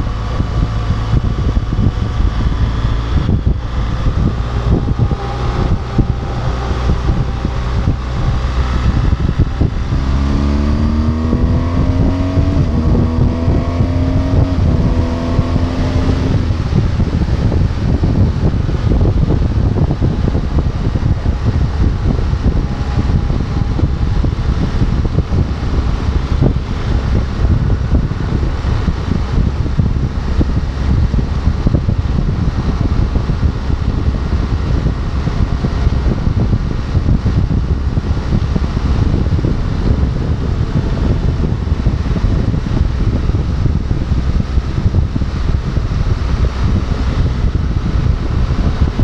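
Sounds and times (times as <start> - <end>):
motorcycle running: 0.0 - 49.0
wind buffeting microphone: 0.0 - 49.0.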